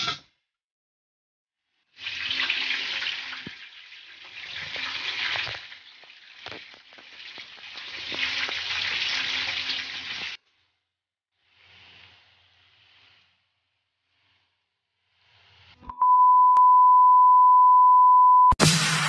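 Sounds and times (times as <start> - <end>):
water boiling with steam hiss: 1.9 - 10.8, 11.4 - 15.8.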